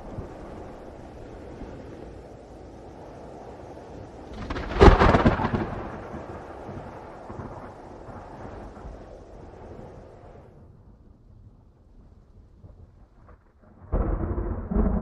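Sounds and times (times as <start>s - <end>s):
low rumble: 0.0s - 15.0s
loud thunderclap: 3.9s - 9.1s, 12.6s - 15.0s.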